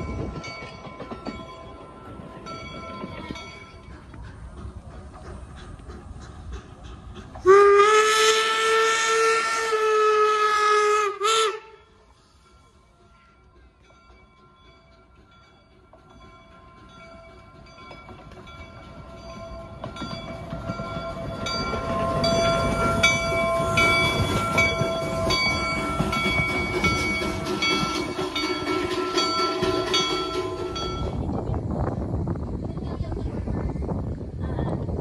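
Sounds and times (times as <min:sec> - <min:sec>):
steady ringing tones: 0:00.0 - 0:04.6, 0:12.3 - 0:31.5
wheels clicking over rail joints: 0:00.0 - 0:08.9, 0:13.0 - 0:31.7
steam locomotive running past: 0:00.0 - 0:35.0.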